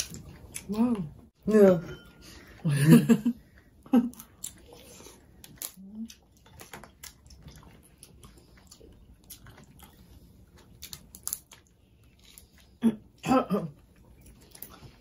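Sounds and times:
chewing and mouth smacks: 0:00.0 - 0:00.7, 0:03.5 - 0:12.8.

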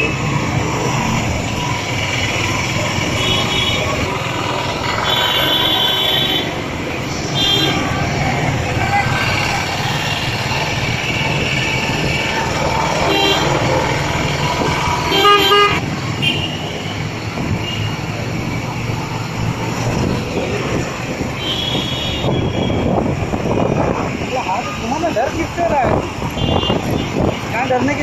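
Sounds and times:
engine and road noise: 0:00.0 - 0:28.0
vehicle horns tooting: 0:03.0 - 0:04.1, 0:05.0 - 0:06.6, 0:07.2 - 0:07.9, 0:13.0 - 0:13.7, 0:15.1 - 0:16.9, 0:21.4 - 0:23.0, 0:26.3 - 0:27.3.

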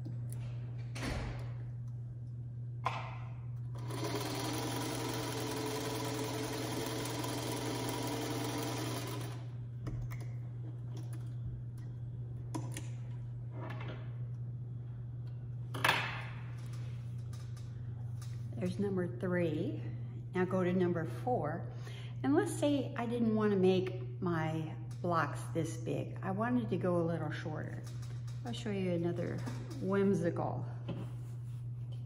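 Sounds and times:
sewing machine stitching: 0:03.8 - 0:09.4.

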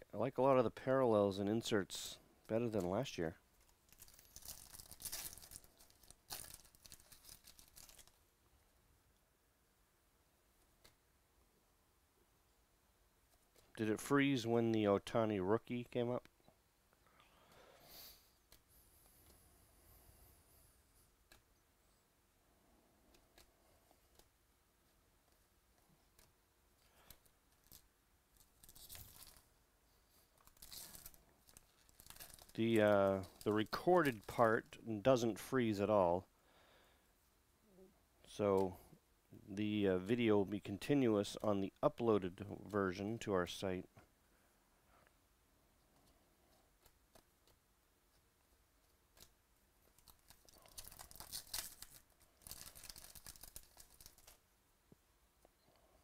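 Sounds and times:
plastic wrapper tearing and crinkling: 0:03.6 - 0:08.2, 0:27.0 - 0:29.5, 0:30.4 - 0:34.5, 0:49.1 - 0:54.4.

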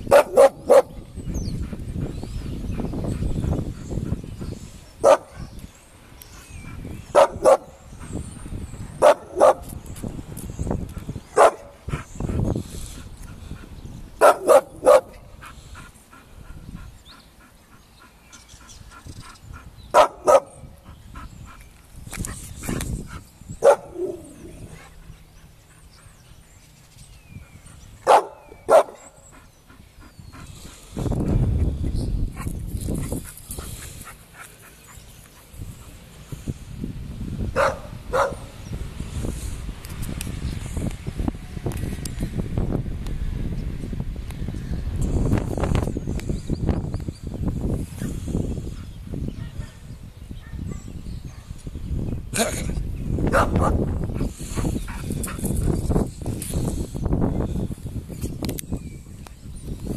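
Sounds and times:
dog barking: 0:00.1 - 0:01.0, 0:05.0 - 0:05.5, 0:07.1 - 0:07.8, 0:09.0 - 0:09.7, 0:11.4 - 0:11.8, 0:14.2 - 0:15.2, 0:19.9 - 0:20.6, 0:23.6 - 0:24.4, 0:28.0 - 0:29.1, 0:37.6 - 0:38.5, 0:49.4 - 0:49.8, 0:50.4 - 0:51.5, 0:53.3 - 0:53.8.

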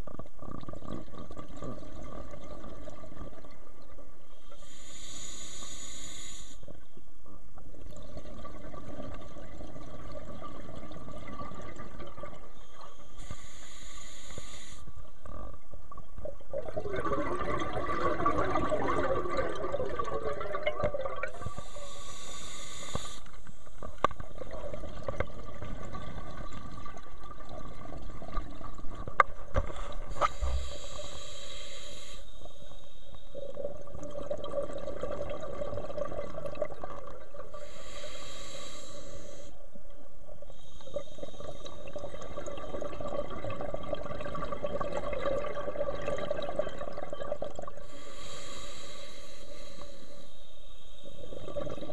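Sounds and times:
hissing bubble bursts: 0:16.5 - 0:23.2.

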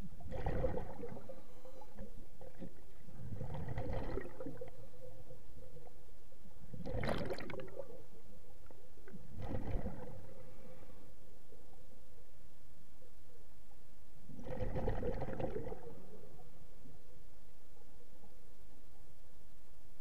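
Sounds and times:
regulator exhale bubbling underwater: 0:00.2 - 0:05.2, 0:06.7 - 0:08.0, 0:09.3 - 0:10.5, 0:14.3 - 0:16.4.

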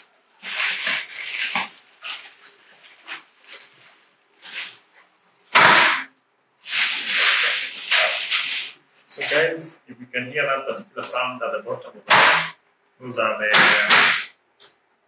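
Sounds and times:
plastic bag crinkling: 0:00.3 - 0:05.0.

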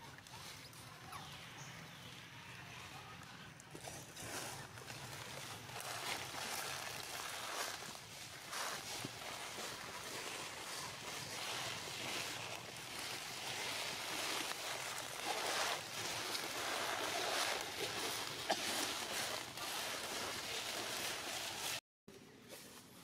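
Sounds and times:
footsteps on dry leaves: 0:03.7 - 0:21.8.

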